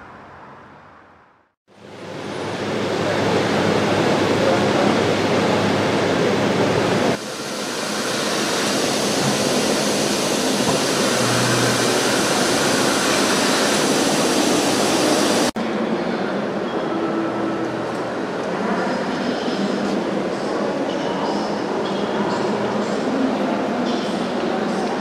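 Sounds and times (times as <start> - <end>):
steam locomotive hissing steam: 7.1 - 15.6.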